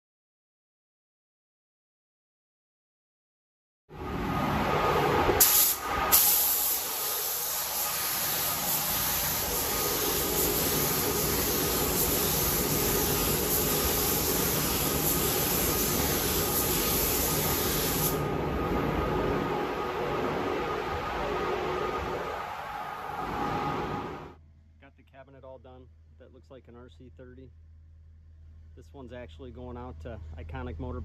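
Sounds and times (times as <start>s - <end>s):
paint spray gun hissing: 5.4s - 18.3s.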